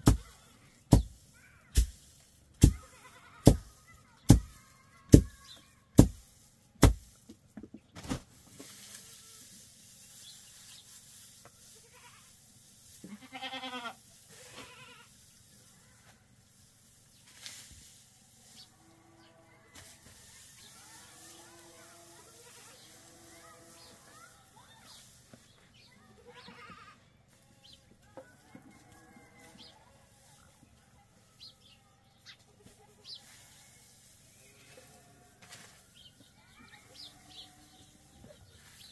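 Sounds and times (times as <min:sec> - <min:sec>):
goat bleating: 0:13.1 - 0:15.1, 0:26.2 - 0:27.0.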